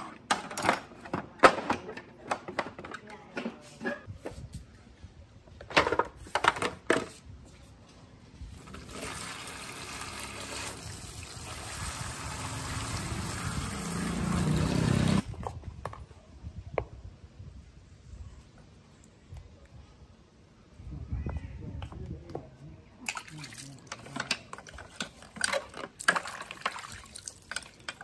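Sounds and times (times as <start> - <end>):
water pouring and splashing: 8.6 - 15.6, 23.0 - 28.0.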